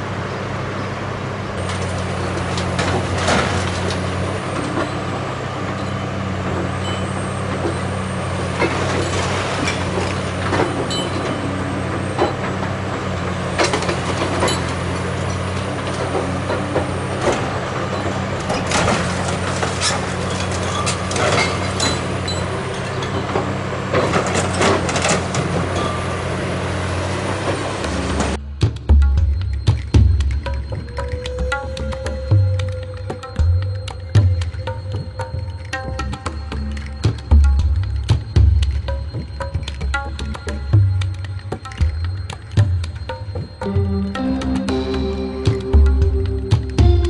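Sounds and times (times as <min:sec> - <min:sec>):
excavator diesel engine running: 0:00.0 - 0:47.0
masonry breaking and falling: 0:18.5 - 0:23.4.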